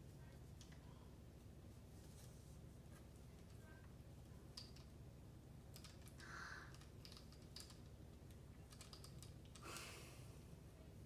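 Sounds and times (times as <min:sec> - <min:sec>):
soft rustles: 0:00.0 - 0:05.0.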